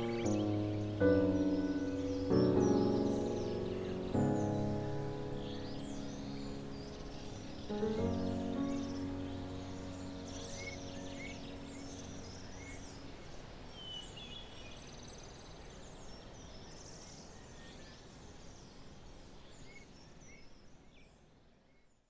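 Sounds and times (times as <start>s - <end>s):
background music held notes: 0.0s - 13.2s
bird trill: 0.0s - 14.5s
soft high hiss: 0.0s - 21.9s
birds chirping: 0.0s - 22.0s.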